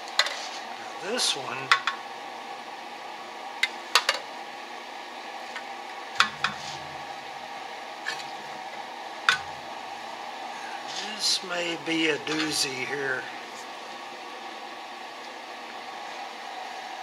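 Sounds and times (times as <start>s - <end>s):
steady background hum: 0.0s - 17.0s.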